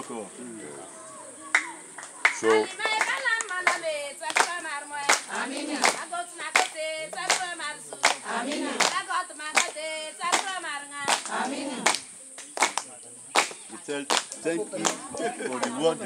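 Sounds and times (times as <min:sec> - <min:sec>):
hand clapping: 0:01.5 - 0:15.8
people singing together: 0:02.3 - 0:12.2, 0:13.8 - 0:16.0.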